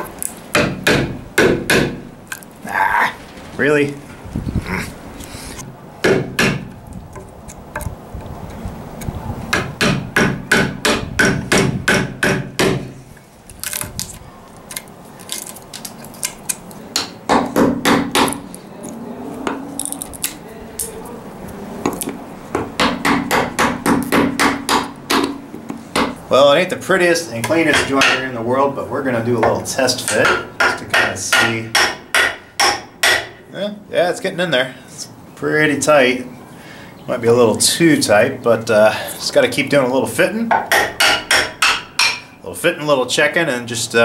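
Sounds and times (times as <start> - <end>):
hammer striking chisel: 0.0 - 2.0, 6.0 - 6.7, 9.5 - 12.9, 16.9 - 18.5, 21.9 - 26.2, 27.4 - 28.3, 29.4 - 33.4, 40.5 - 42.4.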